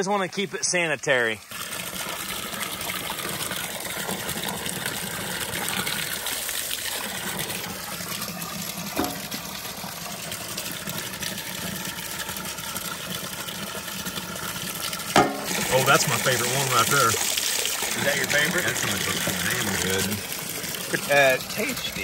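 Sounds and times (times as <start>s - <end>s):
water splashing into plastic cooler: 1.4s - 22.0s
sharp knock: 15.2s - 15.5s.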